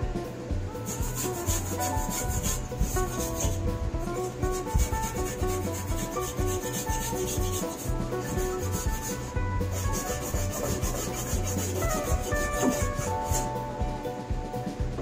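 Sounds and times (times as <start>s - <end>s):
background music: 0.0s - 15.0s
hand scrubbing sheet metal: 0.8s - 13.6s.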